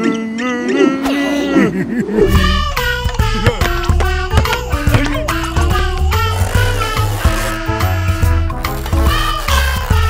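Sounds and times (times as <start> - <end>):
bouncy cartoon music: 0.0 - 10.0.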